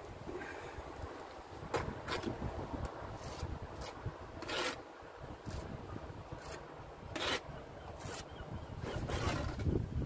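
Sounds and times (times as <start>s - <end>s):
trowel scraping mortar on brick: 3.2s - 4.8s, 5.4s - 5.8s, 6.4s - 9.8s.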